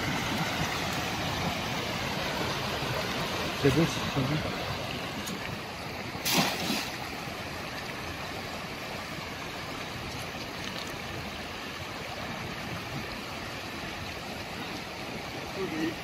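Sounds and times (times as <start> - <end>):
stream rushing over rocks: 0.0 - 16.0
net splashing onto water: 6.2 - 7.1.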